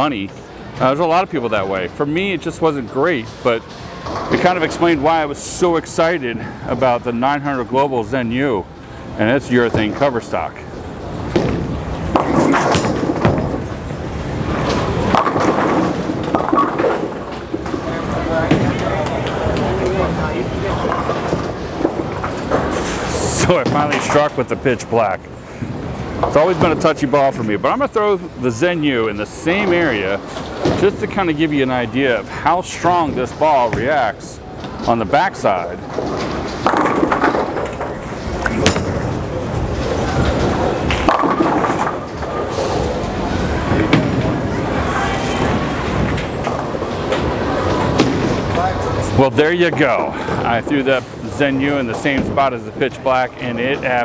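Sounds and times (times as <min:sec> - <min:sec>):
bowling ball rolling on wooden lane: 0:11.0 - 0:24.2, 0:35.8 - 0:49.9.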